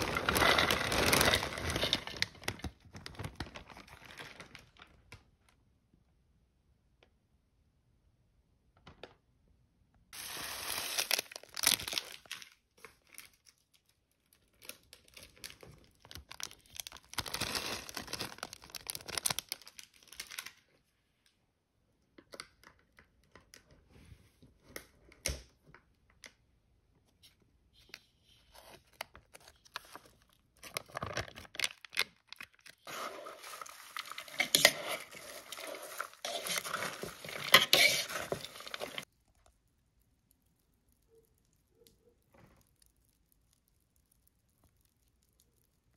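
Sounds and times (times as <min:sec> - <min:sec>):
plastic packets tearing and crinkling: 0:00.0 - 0:05.1, 0:10.2 - 0:20.6, 0:28.9 - 0:39.1
seeds poured onto salad: 0:10.2 - 0:12.3, 0:32.8 - 0:39.1
salad rustling as it is tossed: 0:32.9 - 0:39.1.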